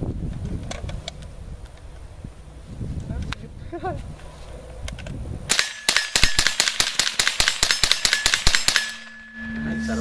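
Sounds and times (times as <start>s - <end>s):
steel targets ringing: 5.5s - 6.4s, 8.0s - 10.0s
rifle firing rapid shots: 5.5s - 9.2s.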